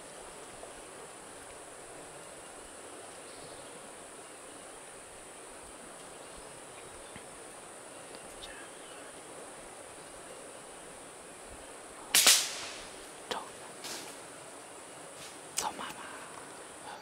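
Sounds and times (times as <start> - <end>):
faint ticks: 13.0 - 16.6.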